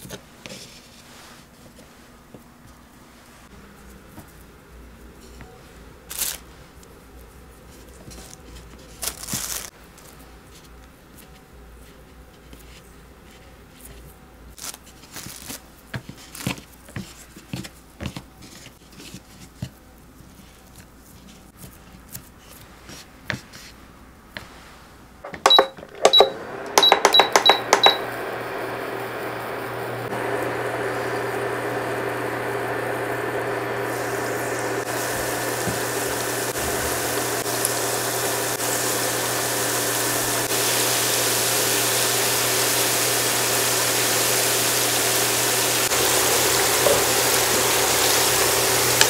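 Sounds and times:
taps and rustles of noodle strands: 6.1s - 11.4s, 14.5s - 23.8s
induction hob humming: 25.2s - 49.0s
hob control panel beeps: 25.3s - 28.1s.

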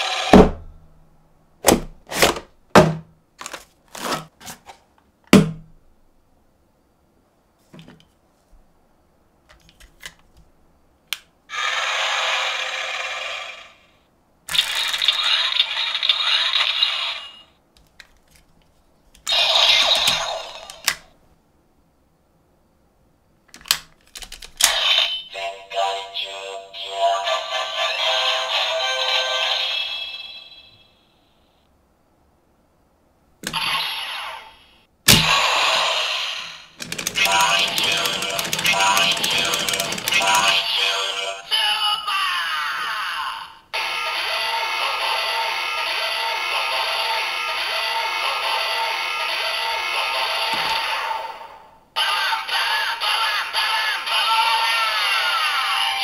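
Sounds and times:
cardboard packaging scrapes and knocks: 2.1s - 2.5s, 3.4s - 4.8s
toy electronic sound effects: 14.5s - 17.5s, 19.3s - 20.9s, 24.6s - 30.7s, 35.3s - 41.6s, 43.8s - 51.4s
sharp plastic clicks: 23.5s - 24.8s, 36.8s - 40.6s.

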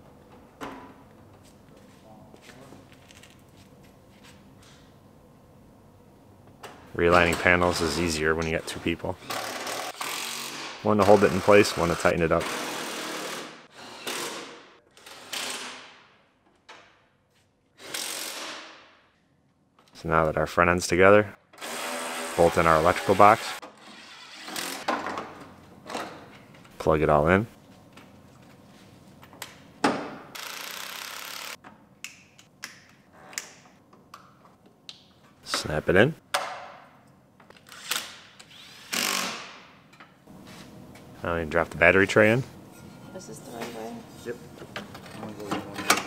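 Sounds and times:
ratchet wrench spinning: 30.4s - 31.6s
cordless power tool driving bolts: 38.8s - 39.5s.

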